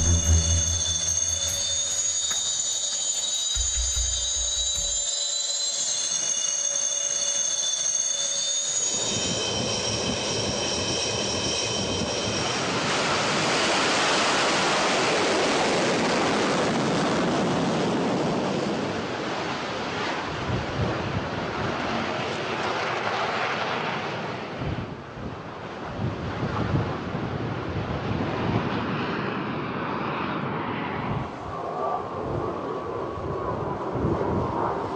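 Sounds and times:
jet engine rushing roar: 0.0s - 2.6s
jet engine high whine: 0.0s - 17.1s, 28.8s - 34.9s.

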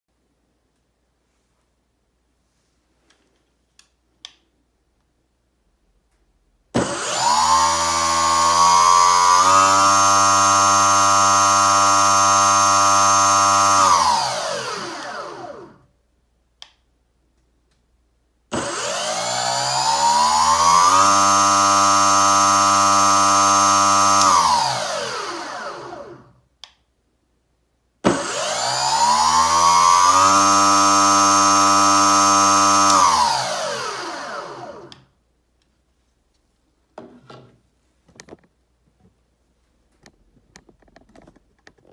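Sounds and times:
electric motor impeller whine: 6.8s - 15.8s, 18.5s - 26.3s, 28.1s - 35.0s.

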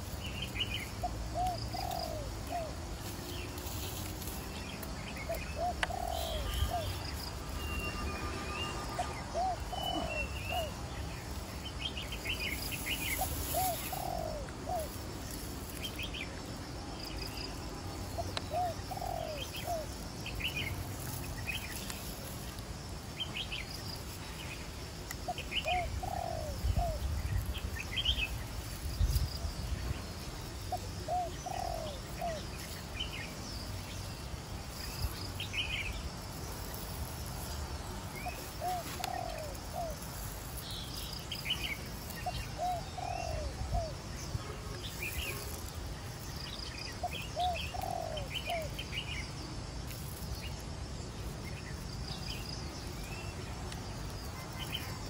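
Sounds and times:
small birds chirping: 0.0s - 55.0s
low bird cooing: 0.7s - 2.9s, 5.2s - 7.2s, 8.9s - 10.9s, 12.8s - 15.0s, 18.1s - 20.7s, 25.2s - 27.5s, 30.6s - 32.7s, 38.2s - 40.3s, 42.2s - 44.1s, 47.0s - 48.8s.

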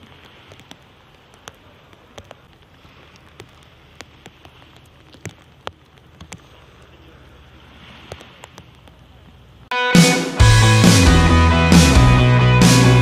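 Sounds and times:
light rain patter: 0.0s - 9.7s
raindrops ticking near microphone: 0.0s - 9.7s.

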